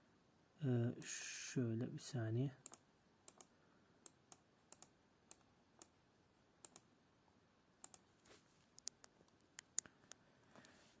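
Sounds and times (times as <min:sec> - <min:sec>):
computer mouse clicking: 0:02.6 - 0:06.0, 0:06.6 - 0:06.9, 0:07.8 - 0:08.0, 0:08.8 - 0:10.2.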